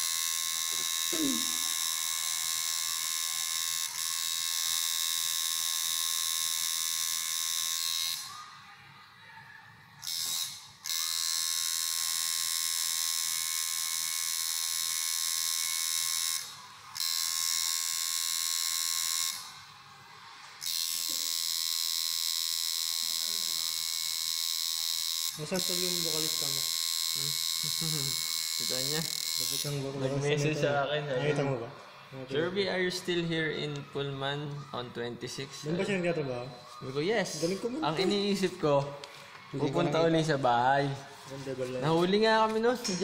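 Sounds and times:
tattoo machine buzzing: 0.0s - 8.4s, 10.0s - 19.7s, 20.6s - 30.0s.

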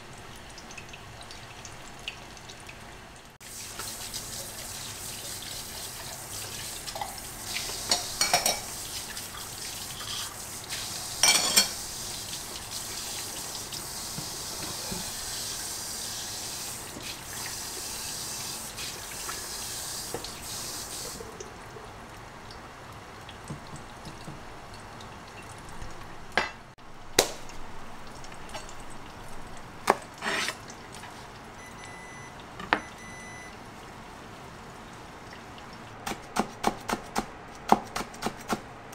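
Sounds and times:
glass and utensils clinking: 7.9s - 8.7s, 11.2s - 11.8s
tap running into sink: 23.5s - 24.5s.

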